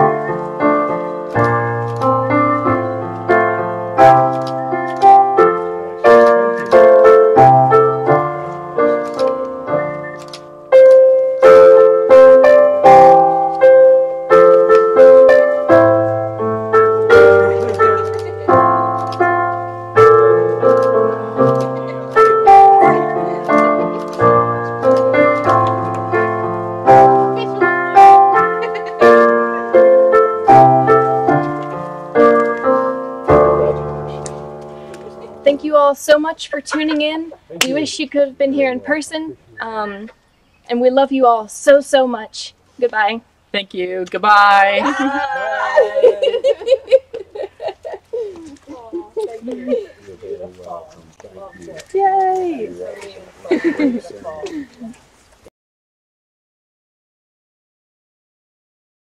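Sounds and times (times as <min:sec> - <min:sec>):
slow solo piano piece: 0:00.0 - 0:35.7.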